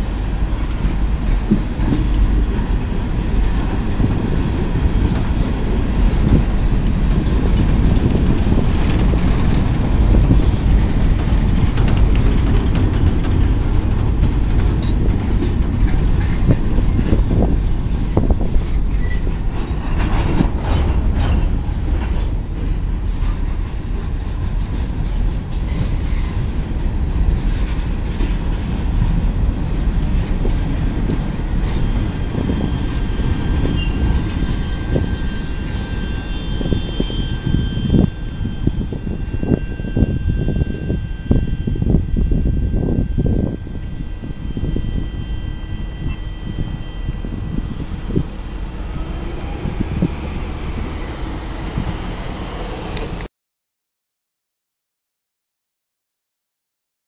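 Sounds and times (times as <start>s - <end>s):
train wheels rumbling and clattering: 0.0s - 53.3s
high steady squeal: 29.0s - 53.3s.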